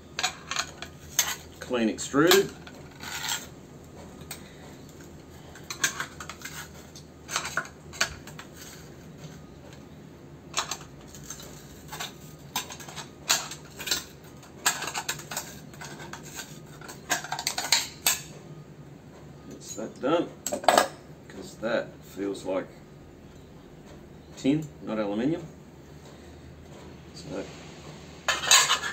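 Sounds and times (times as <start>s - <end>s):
metal tool scraping on metal: 0.2s - 3.5s, 28.3s - 28.9s.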